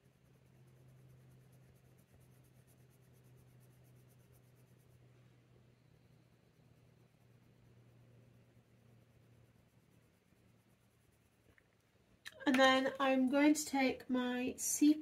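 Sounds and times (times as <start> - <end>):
low steady hum: 0.0 - 15.0
pencil scratching on paper: 0.1 - 5.2.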